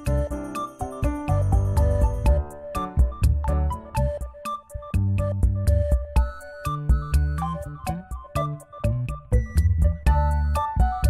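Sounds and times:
background music with beat: 0.0 - 11.0.

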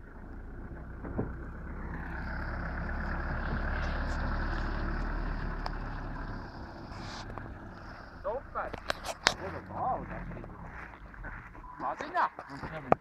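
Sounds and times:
diesel engine driving past: 0.0 - 11.8.

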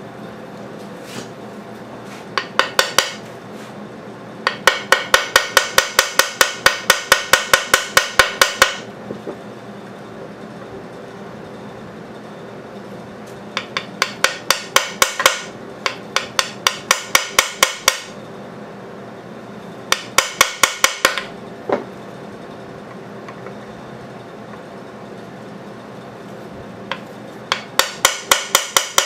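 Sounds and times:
small hammer tapping metal: 2.4 - 3.2, 4.4 - 8.9, 13.6 - 18.2, 19.9 - 21.3, 26.9 - 29.0.

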